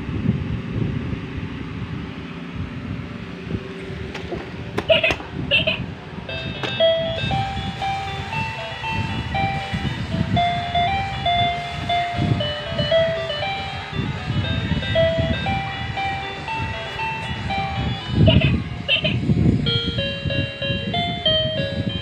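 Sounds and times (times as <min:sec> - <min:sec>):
electronic beeping toy tune: 0:04.9 - 0:22.0.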